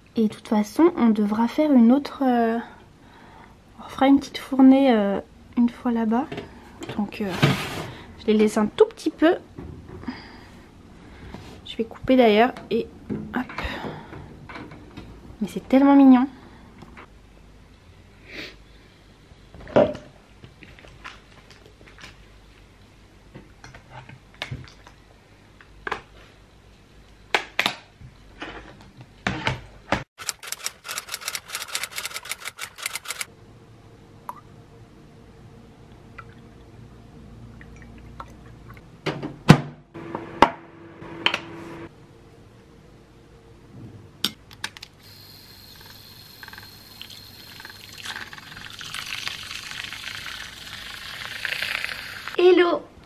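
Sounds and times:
milk frother whirring: 45.0 - 52.4
milk pouring into cup: 45.7 - 52.3.

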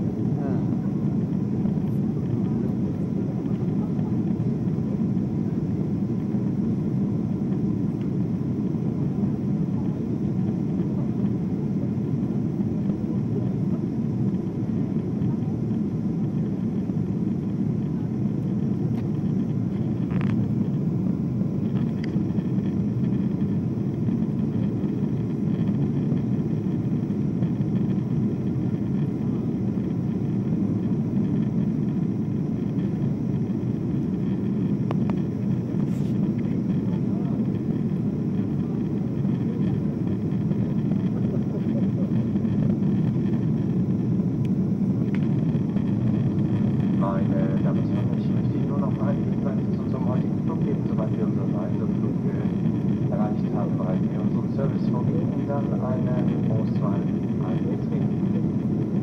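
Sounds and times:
jet engine rumble: 0.0 - 59.0.

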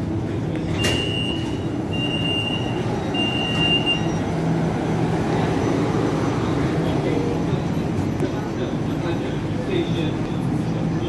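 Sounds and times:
train doors opening: 0.0 - 8.7
low rumble of stopped train: 0.0 - 11.0
long high warning beeps: 0.8 - 4.4.

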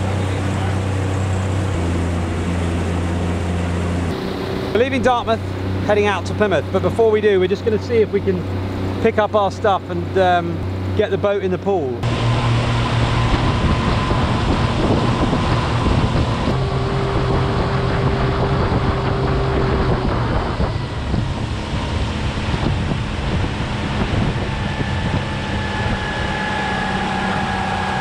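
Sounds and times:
outboard motor running: 0.0 - 28.0
wind buffeting microphone: 12.0 - 28.0.

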